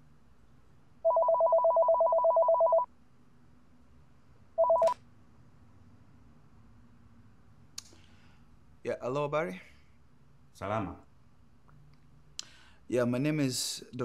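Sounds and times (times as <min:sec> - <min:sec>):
telephone ringing two-tone warble: 0:01.0 - 0:02.9, 0:04.6 - 0:05.0.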